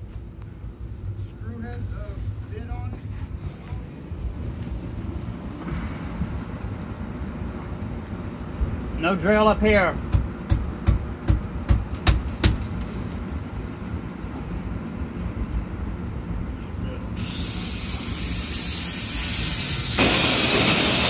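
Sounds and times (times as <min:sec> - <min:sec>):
sharp knocks: 0:10.1 - 0:13.0
high rising whine: 0:12.3 - 0:21.0
loud steady hiss: 0:17.2 - 0:21.0.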